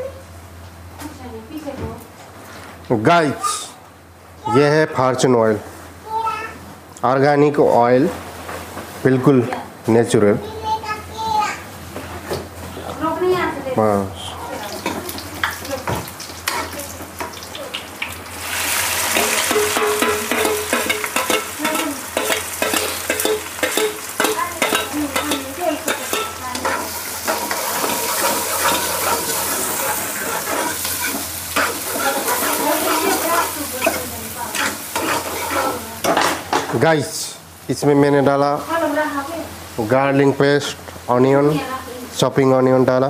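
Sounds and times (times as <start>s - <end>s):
onions sizzling in hot oil: 14.4s - 42.8s
metal ladle scraping a pan: 19.0s - 36.2s.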